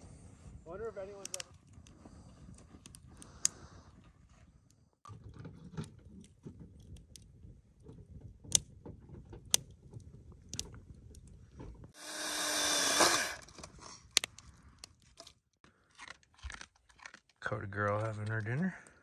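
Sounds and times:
campfire crackling and popping: 1.2 - 3.7
power saw cutting wood: 12.0 - 13.5.

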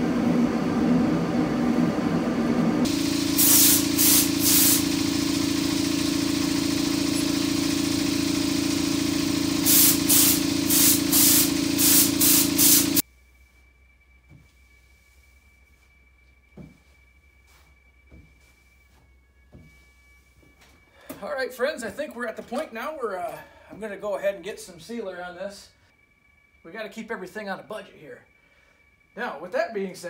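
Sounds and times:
motor hum: 0.0 - 13.0
air blow gun blasts: 2.9 - 13.0.

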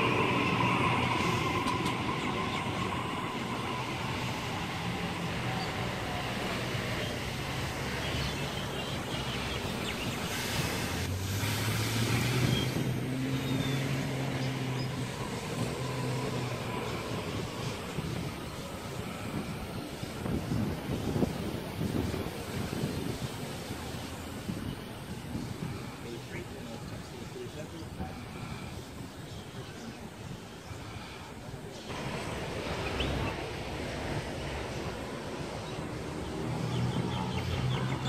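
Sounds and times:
electric train motor whine: 0.0 - 7.9
approaching train low hum: 0.0 - 38.0
rumble of train wheels: 0.0 - 38.0.

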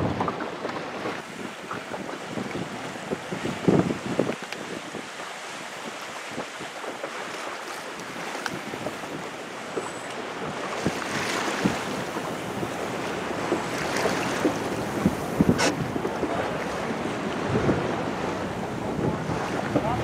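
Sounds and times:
water rushing around boat: 0.0 - 20.0
wind buffeting microphone: 0.0 - 20.0.

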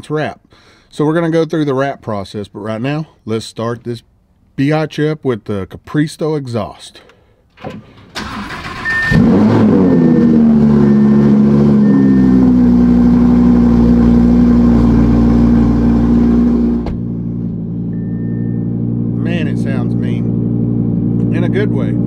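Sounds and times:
car engine revving and idling: 8.7 - 22.0
high dashboard chime beeping: 8.8 - 13.4, 17.9 - 20.0.

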